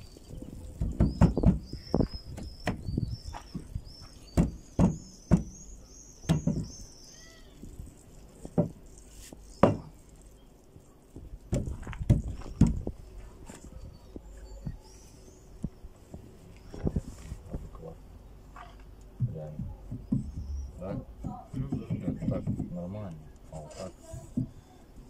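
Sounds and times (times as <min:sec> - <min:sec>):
knocking on wooden window frame: 0:00.8 - 0:02.9, 0:04.3 - 0:05.6, 0:06.3 - 0:06.8, 0:08.5 - 0:08.8, 0:09.6 - 0:09.9, 0:11.5 - 0:12.9, 0:19.2 - 0:22.9.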